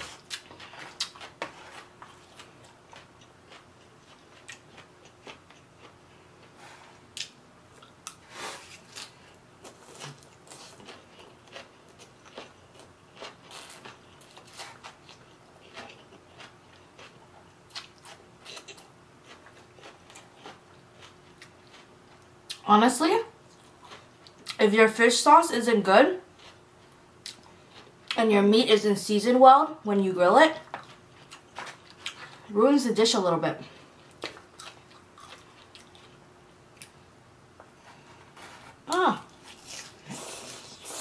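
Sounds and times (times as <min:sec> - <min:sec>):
person chewing food: 0:00.0 - 0:22.6, 0:23.4 - 0:24.6, 0:26.3 - 0:28.2, 0:30.6 - 0:32.5, 0:33.7 - 0:37.0
faint steady hum: 0:00.0 - 0:41.0.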